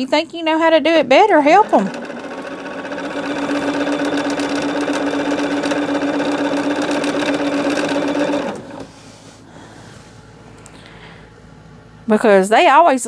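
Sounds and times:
sewing machine running: 1.3 - 8.9.

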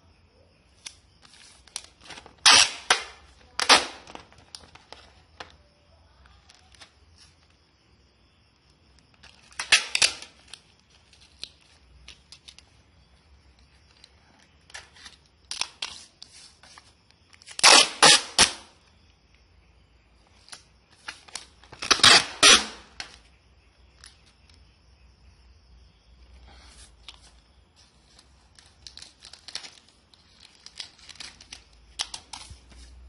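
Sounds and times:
packing material crackling: 0.8 - 5.6, 9.1 - 12.6, 20.4 - 23.2, 27.0 - 33.0
small clicks and rustles: 10.3 - 12.8, 27.0 - 33.0.

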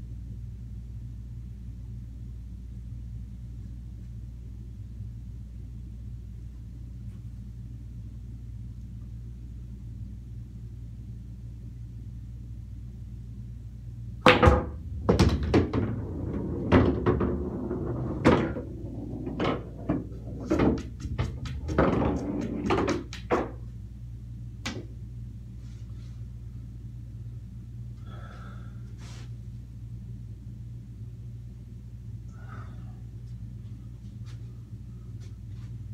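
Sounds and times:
steady low hum: 0.0 - 35.9
pool balls clacking: 14.3 - 23.7.

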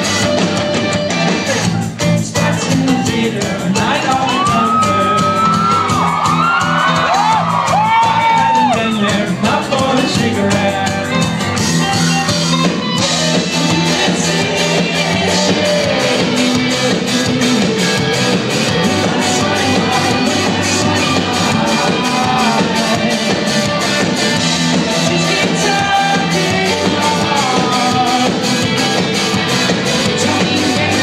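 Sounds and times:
bass guitar: 0.0 - 31.0
electric guitars: 0.0 - 31.0
live rock drums and cymbals: 0.0 - 31.0
person singing: 1.5 - 6.0, 13.2 - 31.0.

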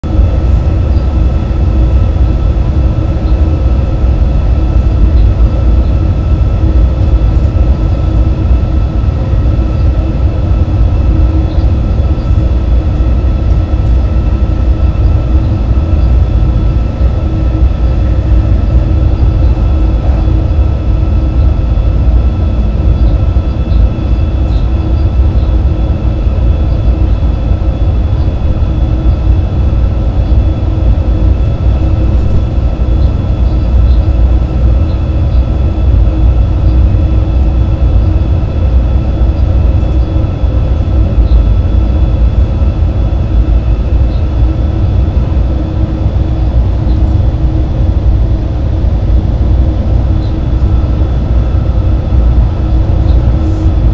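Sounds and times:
locomotive cab rumble: 0.0 - 53.9
faint whining tones: 0.1 - 53.9.

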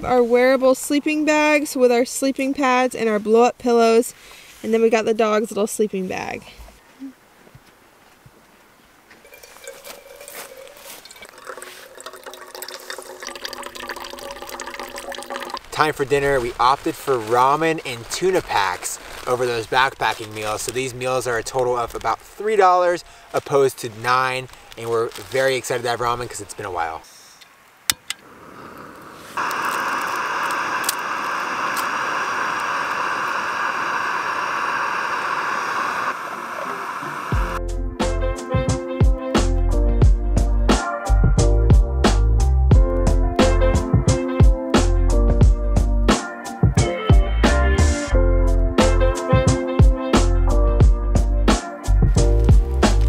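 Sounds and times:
water trickling into metal pot: 9.2 - 16.0
gas burner hissing: 27.9 - 37.6.

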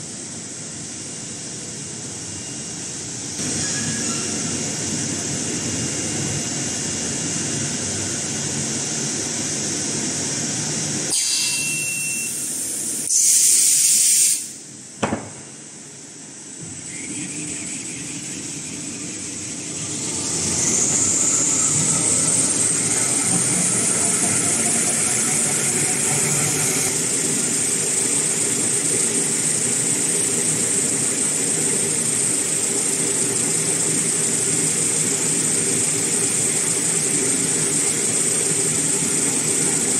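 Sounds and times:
loud hiss: 6.5 - 14.7
machine humming: 16.6 - 29.5
machine whine rising in pitch: 16.6 - 29.6.

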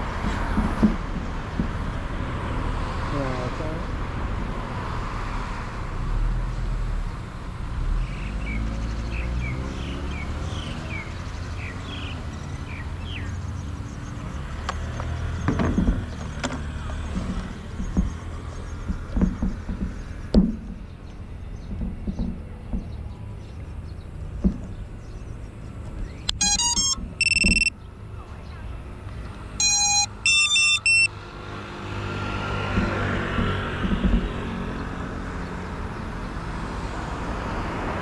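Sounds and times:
street traffic rumble: 0.0 - 38.0
knocks and clatter: 0.1 - 1.8, 15.4 - 23.1, 32.7 - 34.5
short high chirps: 26.3 - 27.7, 29.6 - 31.1.

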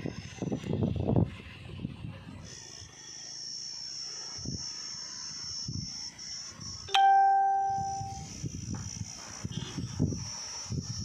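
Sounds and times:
high-pitched insect drone: 2.5 - 11.0
bell-like ding: 6.9 - 8.2.

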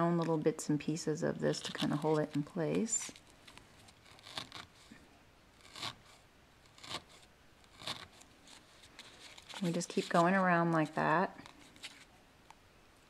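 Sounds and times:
felting needle scratchy pokes: 1.4 - 3.2, 3.8 - 5.0, 5.6 - 12.1.

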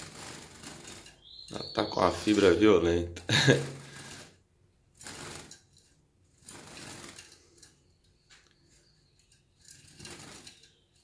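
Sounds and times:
rapid clicking and rattling: 0.0 - 1.3, 5.0 - 7.8, 9.6 - 10.8
bird fluttering and pecking: 0.0 - 2.6, 3.6 - 11.0.

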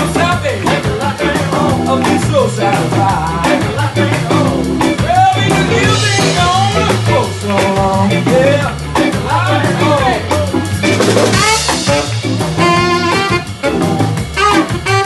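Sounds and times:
person singing: 0.0 - 11.7
live band playing soul groove: 0.0 - 15.0.

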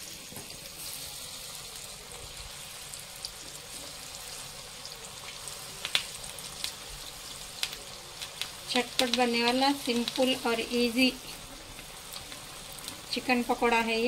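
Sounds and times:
chicken deep-frying in oil: 0.0 - 14.0
crackles of pieces dropped in oil: 4.9 - 10.5.

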